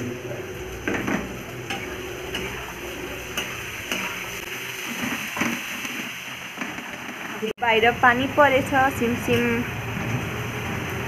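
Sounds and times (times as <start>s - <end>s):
onions sizzling in oil: 0.0s - 11.0s
spatula scraping a pan: 0.9s - 6.1s.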